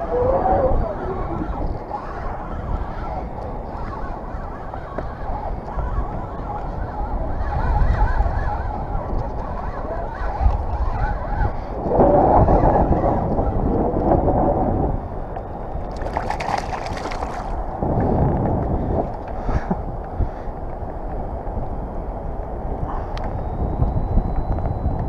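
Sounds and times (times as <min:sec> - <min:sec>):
wind buffeting microphone: 0:00.0 - 0:25.0
water sloshing against kayak hull: 0:15.8 - 0:17.6.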